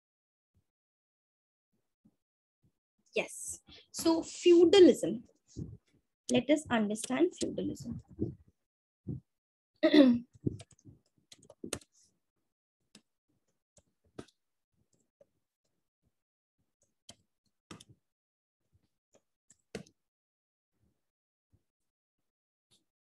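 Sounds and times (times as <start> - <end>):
computer keyboard typing: 10.5 - 11.9.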